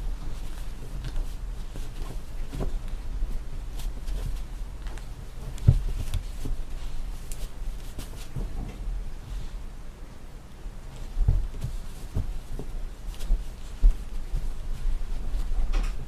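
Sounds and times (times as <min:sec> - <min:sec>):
soft thumps: 0:05.4 - 0:07.0, 0:11.0 - 0:16.0.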